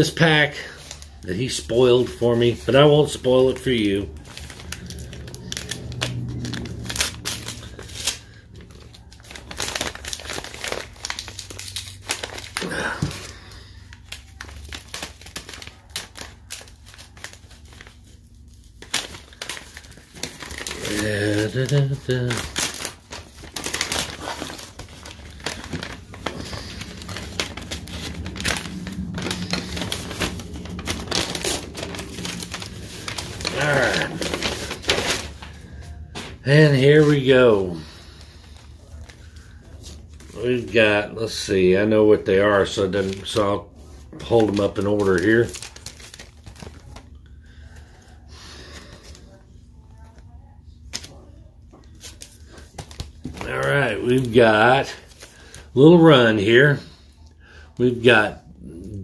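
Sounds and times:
packaging crinkling and tearing: 0.0s - 59.0s
low hum: 2.0s - 14.5s, 17.2s - 36.5s.

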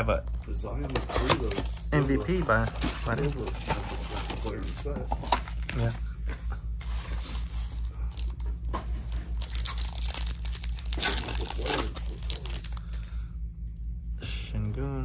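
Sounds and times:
foil wrapper tearing and crinkling: 9.3s - 12.9s.

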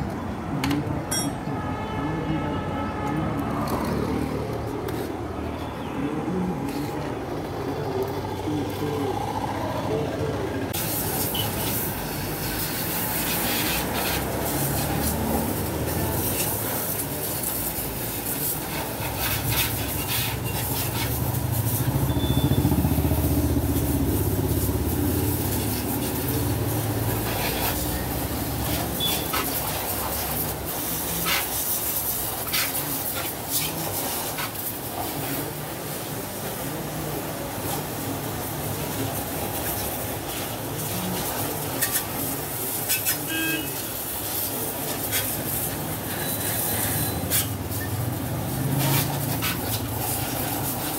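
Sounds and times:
hose water spraying: 10.7s - 50.9s.

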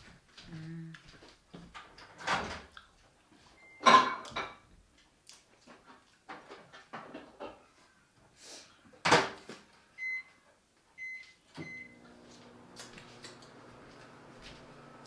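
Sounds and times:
household knocks and clatter: 5.6s - 7.6s, 9.0s - 9.6s.

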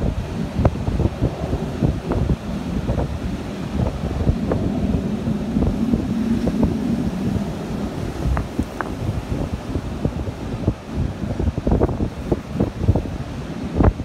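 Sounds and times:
low steady hum: 0.0s - 14.0s
wind buffeting microphone: 0.0s - 14.0s
crackles and knocks: 8.3s - 9.0s.

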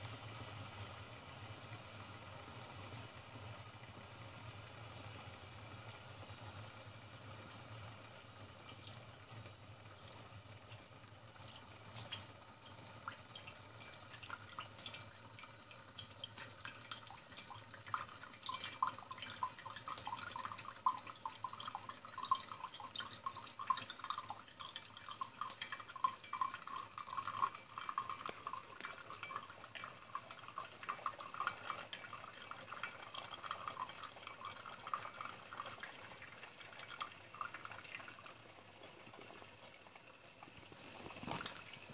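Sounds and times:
espresso dripping into cup: 16.3s - 39.4s.

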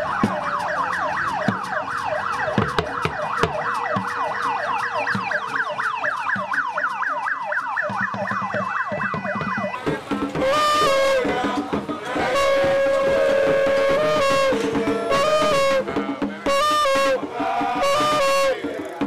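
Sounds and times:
siren yelping: 0.0s - 19.0s.

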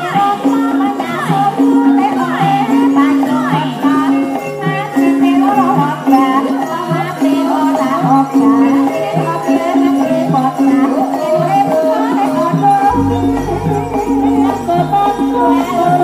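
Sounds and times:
gamelan music: 12.9s - 16.0s.

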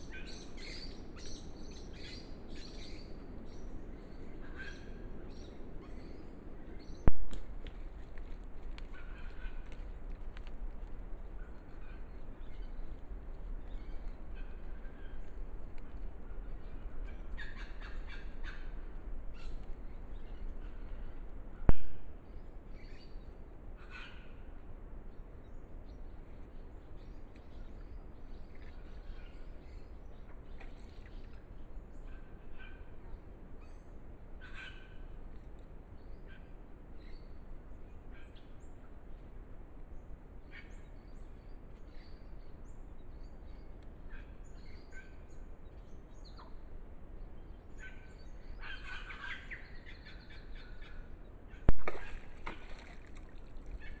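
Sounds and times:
bird calls and chirps: 0.0s - 7.4s, 11.2s - 24.5s, 25.4s - 39.3s, 40.0s - 54.0s.

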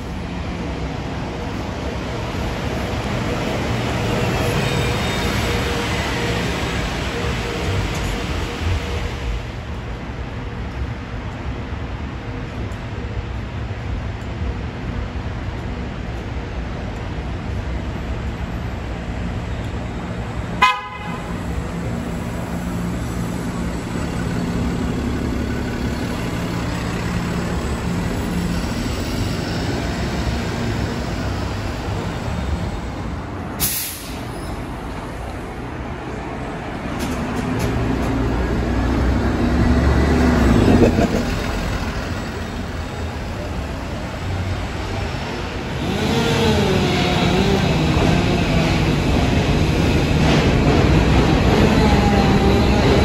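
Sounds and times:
bus engine and road noise: 0.0s - 53.0s
bus horn toot: 20.6s - 21.4s
brief air hiss: 33.6s - 34.4s.

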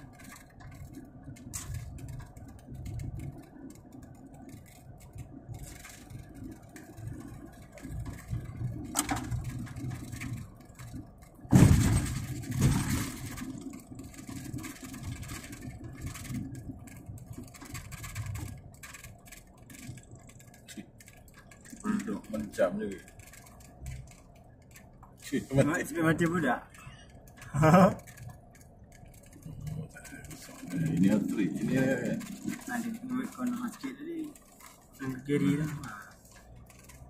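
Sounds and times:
car engine and road rumble: 0.0s - 37.0s
car jolting thump: 11.5s - 13.4s.

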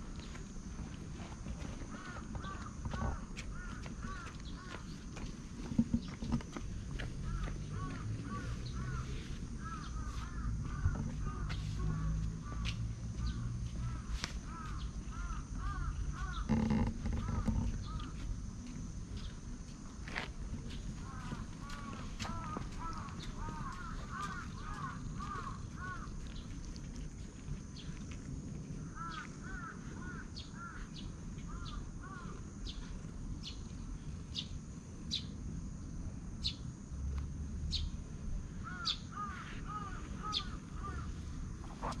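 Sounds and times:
low outdoor rumble: 0.0s - 42.0s
birds chirping: 1.8s - 18.4s, 20.6s - 26.7s, 28.9s - 35.3s, 38.6s - 42.0s.

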